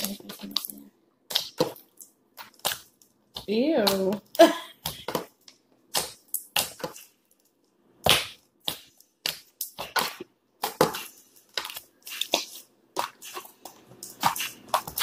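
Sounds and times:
slime squelching and popping: 0.0 - 15.0.

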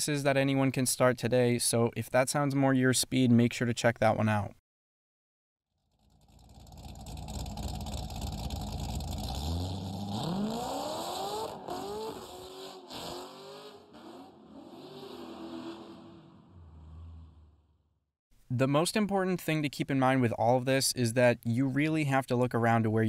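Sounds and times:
car engine idling and revving: 5.8 - 17.5.

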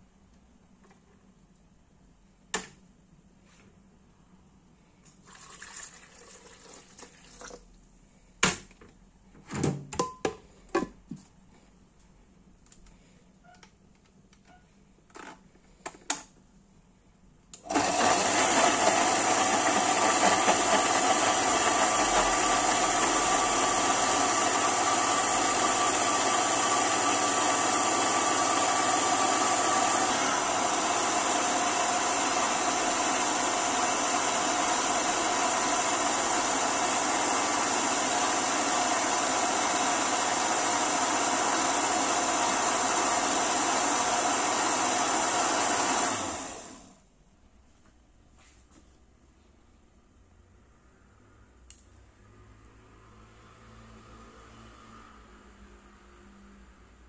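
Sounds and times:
blender motor running: 17.6 - 46.9.

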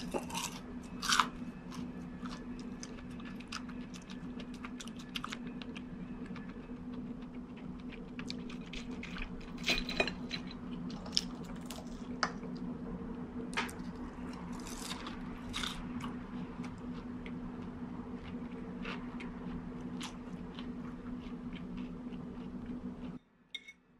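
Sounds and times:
steady low hum: 0.0 - 23.9
chewing: 0.2 - 9.6, 14.3 - 23.2.

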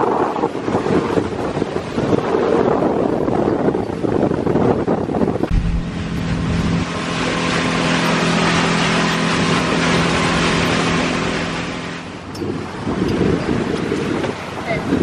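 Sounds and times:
water rushing against hull: 0.0 - 15.0
motorboat engine drone: 5.4 - 15.0.

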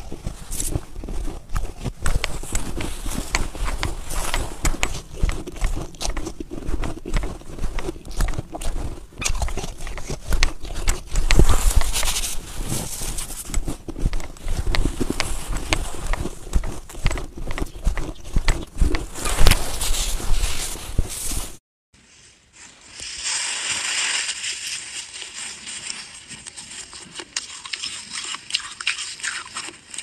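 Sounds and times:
snow crunching: 0.0 - 21.6.

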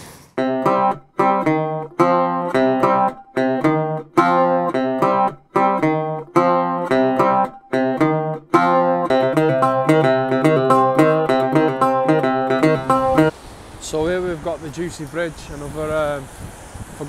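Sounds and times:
acoustic guitar strumming chords: 0.4 - 13.3.

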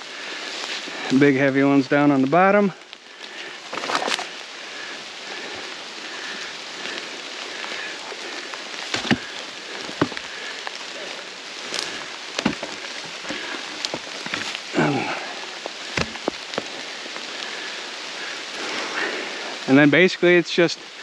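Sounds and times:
steady hiss: 0.0 - 21.0
logs knocking and clunking: 8.9 - 10.3, 11.8 - 15.1, 15.9 - 16.7.

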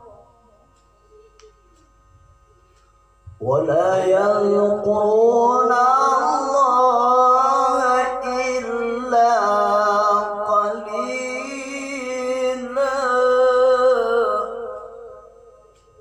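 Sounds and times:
man chanting melodic recitation: 3.3 - 15.6.

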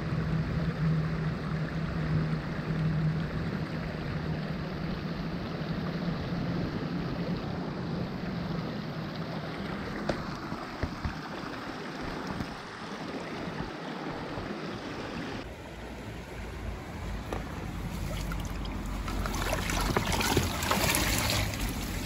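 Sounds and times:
low hum: 0.0 - 11.2
creek rushing: 0.0 - 22.0.

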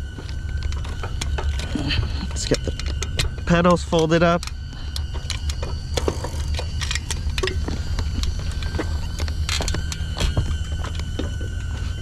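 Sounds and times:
drone propellers whining: 0.0 - 12.0
clicks and knocks of folding bike: 5.2 - 7.6.

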